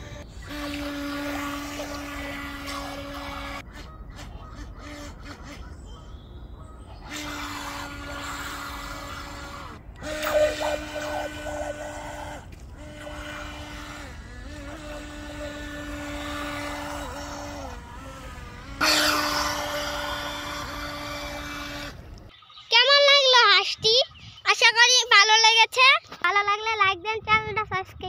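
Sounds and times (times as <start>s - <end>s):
water wake splashing: 0.0s - 5.5s, 7.1s - 23.0s
small electric motor whining: 0.0s - 5.6s, 7.0s - 22.3s.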